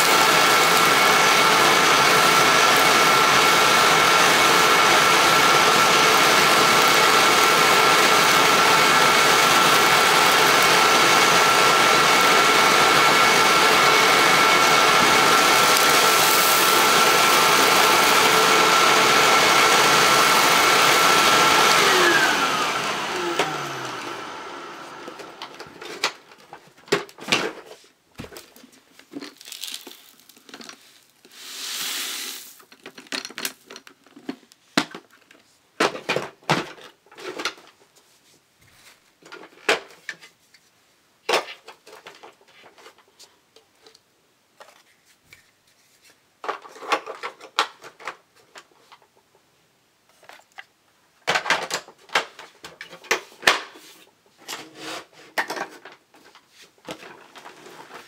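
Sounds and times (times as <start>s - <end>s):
vacuum motor winding down: 0.0s - 25.8s
pouring hiss: 14.8s - 18.3s, 31.3s - 32.6s
debris rustling and crinkling: 15.3s - 18.2s, 25.7s - 35.6s.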